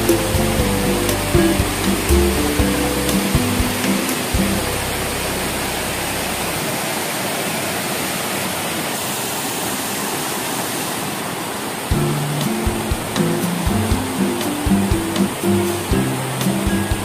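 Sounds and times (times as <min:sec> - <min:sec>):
background music: 0:00.0 - 0:06.0, 0:11.9 - 0:17.0
waterfall rushing: 0:00.0 - 0:17.0.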